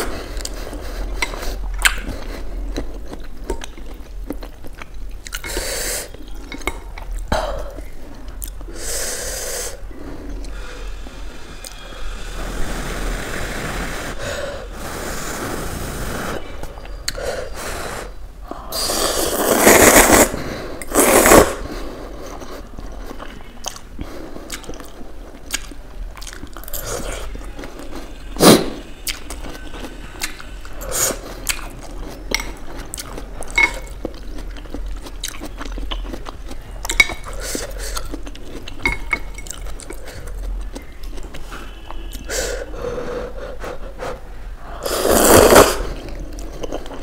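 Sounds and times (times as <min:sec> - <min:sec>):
chewing: 0:00.0 - 0:08.7, 0:22.0 - 0:28.2, 0:29.0 - 0:42.3, 0:45.5 - 0:47.0
loud slurping of noodles: 0:11.8 - 0:16.4, 0:18.7 - 0:21.7, 0:44.8 - 0:46.0.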